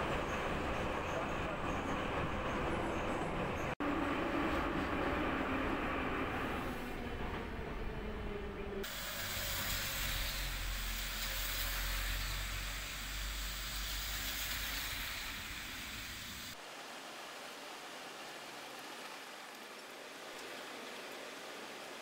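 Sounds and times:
metro train rumble: 0.0 - 16.6
rain hiss: 8.8 - 22.0
tyres hissing on wet road: 8.8 - 22.0.

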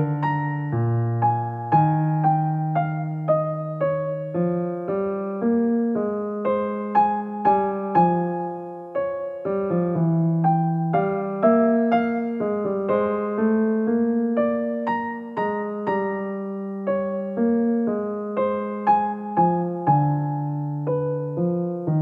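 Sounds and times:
slow gentle piano music: 0.0 - 22.0.

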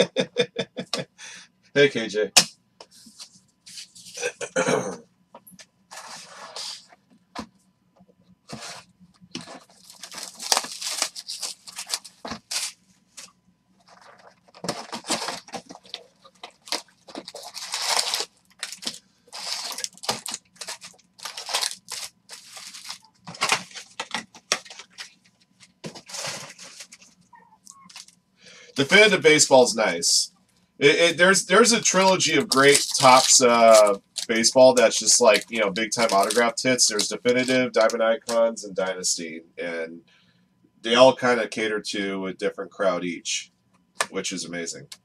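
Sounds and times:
foil packs tearing and crinkling: 9.4 - 12.8, 13.9 - 25.1, 27.9 - 28.1, 31.6 - 38.0.

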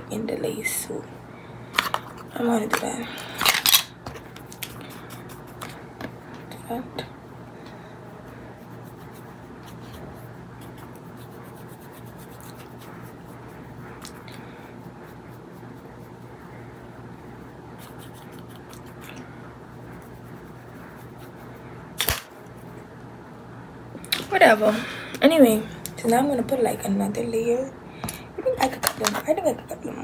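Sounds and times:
steady low hum: 0.0 - 30.0
brush scratching: 4.4 - 5.8, 8.1 - 21.7.

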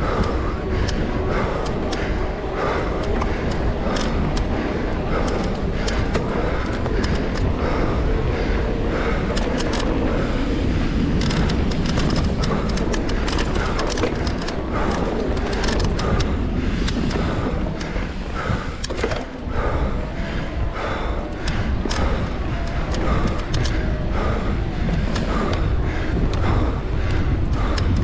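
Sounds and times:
bike clicks and rattles: 0.0 - 28.0
bike tyre noise: 0.0 - 28.0
wind rush on microphone: 0.0 - 28.0.

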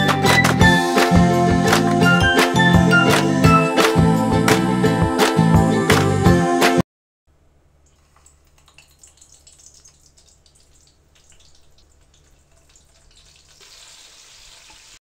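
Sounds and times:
oil sizzling in a pan: 11.4 - 15.0.

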